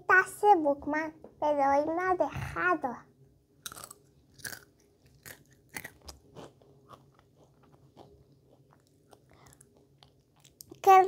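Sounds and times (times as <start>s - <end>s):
child chewing crisp: 3.6s - 10.9s.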